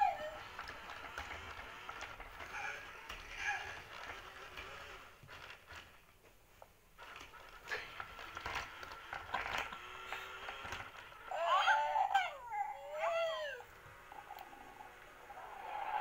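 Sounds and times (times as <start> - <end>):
recorded baby coos and babble: 0.0 - 0.6, 11.2 - 16.0
toys clicking and whirring: 0.0 - 16.0.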